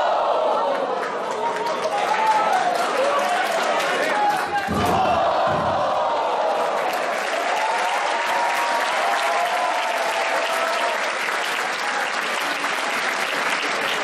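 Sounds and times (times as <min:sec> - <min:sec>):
crowd shouting: 0:00.0 - 0:11.0
crowd clapping: 0:00.0 - 0:14.0.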